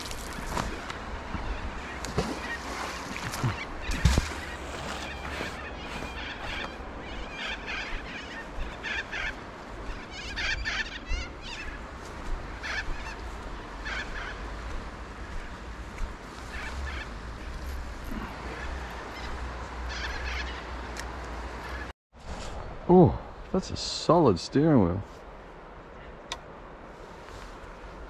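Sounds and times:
birds calling: 0:00.0 - 0:21.9.

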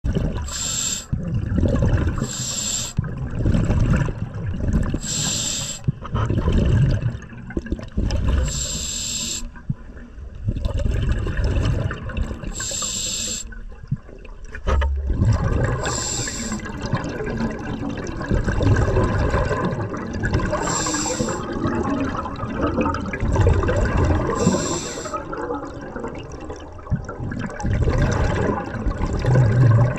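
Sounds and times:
scuba regulator hissing: 0:00.5 - 0:01.1, 0:02.3 - 0:03.0, 0:05.0 - 0:05.9, 0:08.5 - 0:09.5, 0:12.6 - 0:13.5, 0:15.8 - 0:16.6, 0:20.6 - 0:21.4, 0:24.4 - 0:25.2
low underwater rumble: 0:09.5 - 0:12.6, 0:13.6 - 0:29.9.

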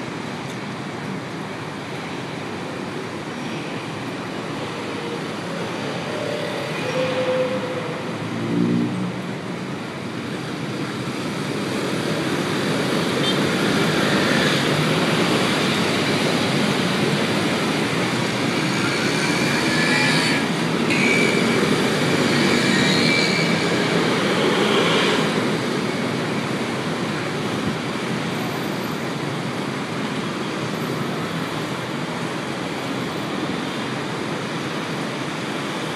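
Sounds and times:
scooters and cars moving off: 0:04.2 - 0:28.3.

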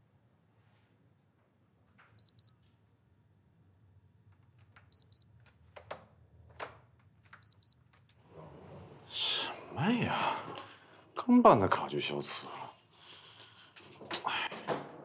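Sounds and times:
door lock double beep: 0:02.2 - 0:02.5, 0:05.0 - 0:05.2, 0:07.4 - 0:07.8.

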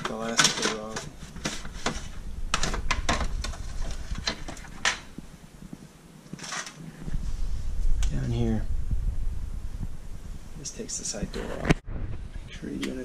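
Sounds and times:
plastic scrape: 0:00.0 - 0:05.0, 0:06.4 - 0:07.0
plastic parts clicking and knocking: 0:00.0 - 0:05.1.

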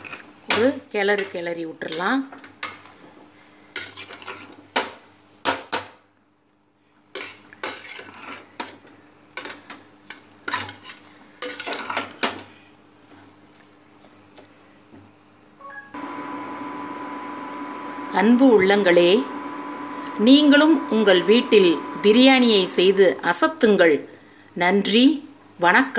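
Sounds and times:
metal spoon scraping a pot: 0:03.8 - 0:04.6, 0:07.1 - 0:08.8, 0:09.4 - 0:12.2.

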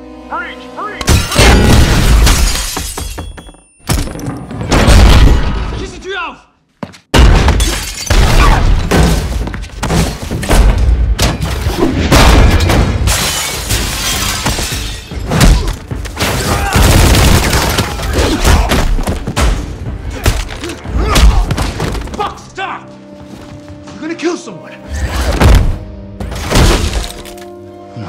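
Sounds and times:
background music: 0:00.0 - 0:02.2, 0:10.4 - 0:28.0
crashing and shattering: 0:11.3 - 0:19.4.

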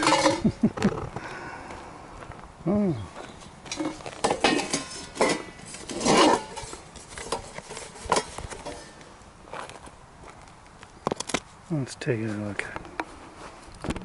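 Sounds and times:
metal pan clanking and scraping: 0:00.0 - 0:00.6, 0:03.7 - 0:09.0.

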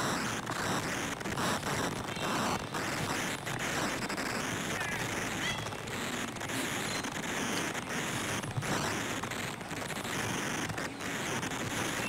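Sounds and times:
steady noisy hiss: 0:00.0 - 0:12.0
faint high bird chirps: 0:04.8 - 0:05.8, 0:06.8 - 0:07.2.

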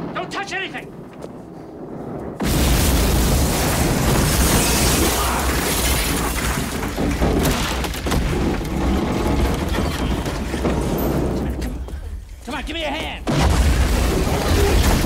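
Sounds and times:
explosion roar with crashing impacts: 0:00.8 - 0:11.5, 0:13.2 - 0:15.0.

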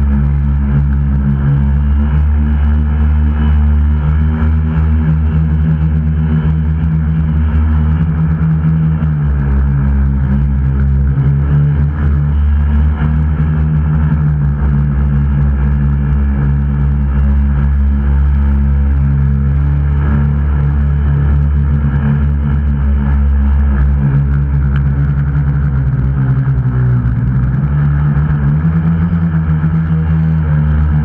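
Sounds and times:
drone motors and propellers: 0:00.0 - 0:31.0.

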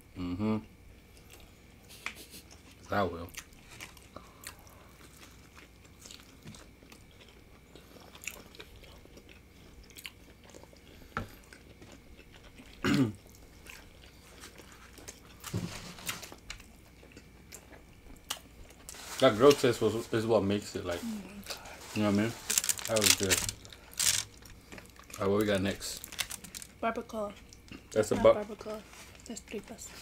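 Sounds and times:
biting and chewing food: 0:01.0 - 0:19.0, 0:22.1 - 0:27.9
small crunches: 0:21.7 - 0:26.8.

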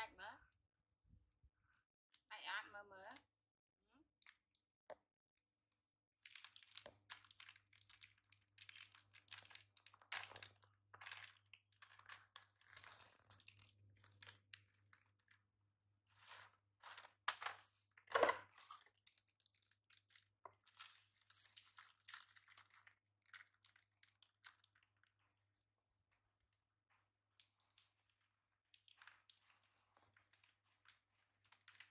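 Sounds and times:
plastic snack packet crinkling: 0:04.2 - 0:04.7, 0:06.2 - 0:15.5, 0:16.1 - 0:25.3, 0:27.2 - 0:31.9.

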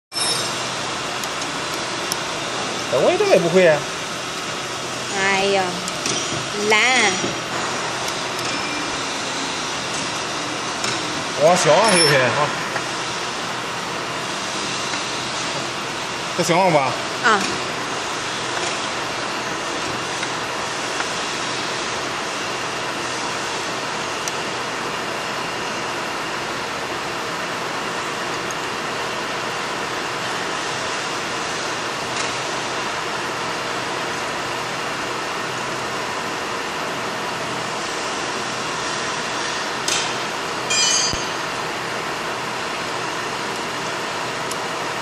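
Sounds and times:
machinery running: 0:00.1 - 0:45.0.

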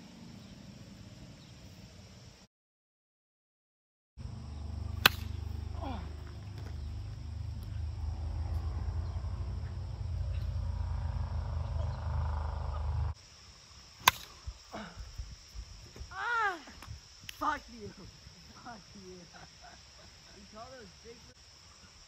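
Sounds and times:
plastic bat hitting ball: 0:05.0 - 0:05.5, 0:14.0 - 0:14.3.

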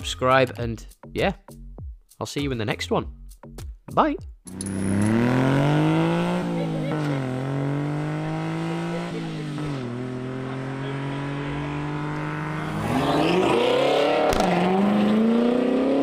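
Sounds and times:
louder engine revving: 0:04.5 - 0:16.0
small truck engine pulling away: 0:04.5 - 0:16.0.

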